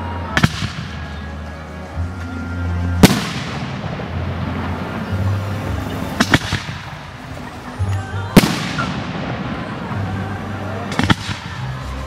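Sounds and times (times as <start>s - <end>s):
music playing: 0.0s - 12.0s
fireworks bursting: 0.2s - 12.0s
loud firework bang: 3.0s - 4.4s
sharp cracks: 6.1s - 7.2s.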